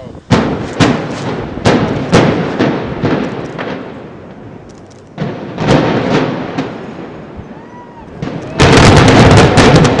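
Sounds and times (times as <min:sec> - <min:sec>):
demolition explosive blasts: 0:00.2 - 0:07.4, 0:08.1 - 0:10.0.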